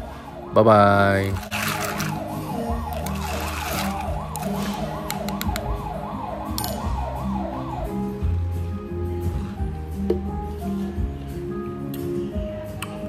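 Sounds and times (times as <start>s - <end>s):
siren yelping: 0.0s - 8.4s
background music low notes: 0.0s - 13.0s.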